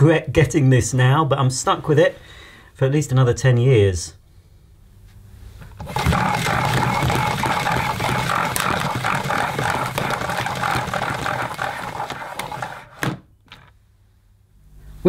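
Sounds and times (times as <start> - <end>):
vacuum cleaner motor running: 5.8 - 13.2.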